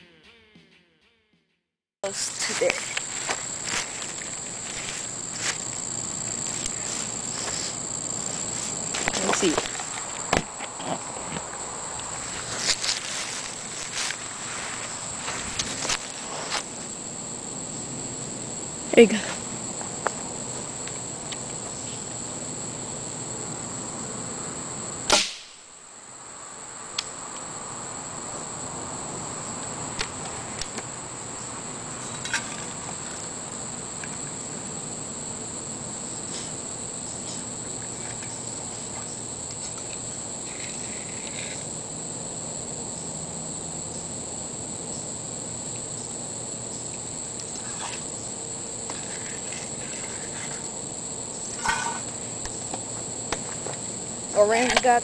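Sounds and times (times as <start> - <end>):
insects chirring: 2.0 - 55.0
pellet gun shot: 25.1 - 25.6.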